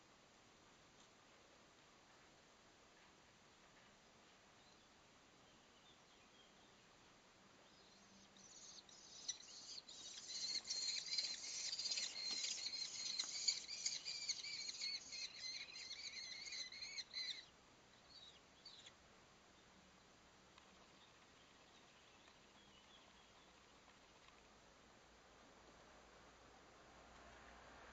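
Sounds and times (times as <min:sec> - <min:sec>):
bird chicks begging calls: 0:07.8 - 0:18.9.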